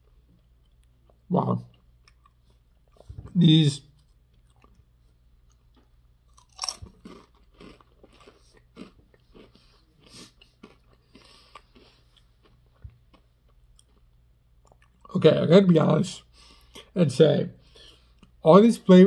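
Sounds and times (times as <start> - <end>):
potato chip crunching: 5.5 - 15.2.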